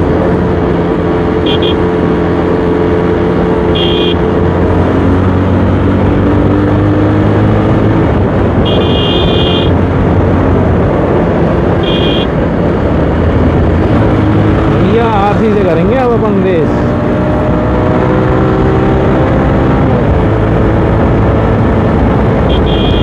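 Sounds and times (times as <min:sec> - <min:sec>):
motorcycle engine running: 0:00.0 - 0:17.0
vehicle horn beeping: 0:01.4 - 0:01.9, 0:03.7 - 0:04.2, 0:08.6 - 0:09.8, 0:11.8 - 0:12.3, 0:22.5 - 0:23.0
wind noise: 0:04.4 - 0:15.6.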